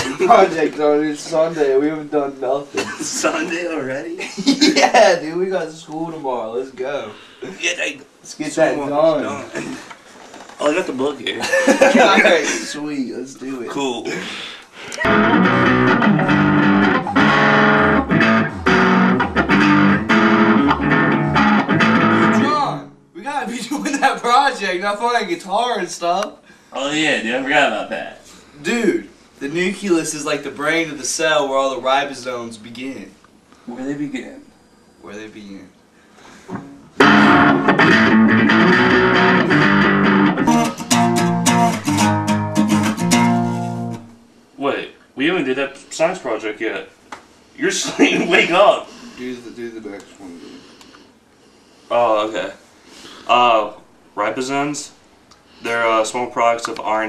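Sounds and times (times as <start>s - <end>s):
electric guitar chord riff: 15.0s - 22.6s, 36.6s - 44.1s
didgeridoo drone: 15.1s - 22.1s.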